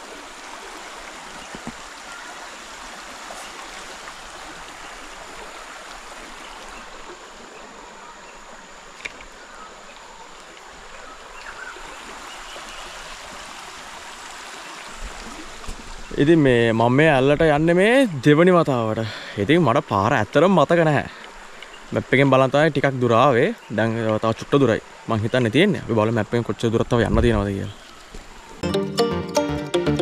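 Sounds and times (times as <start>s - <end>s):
stream of water flowing: 0.0s - 28.6s.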